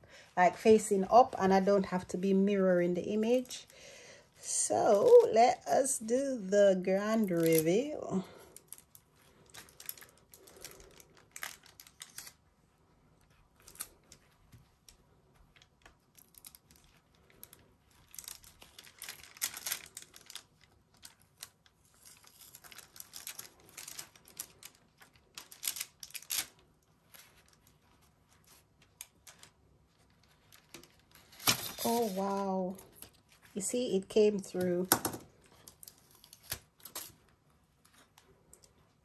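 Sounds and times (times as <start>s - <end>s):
paper peeling and crackling: 8.6s - 12.4s, 15.4s - 33.6s.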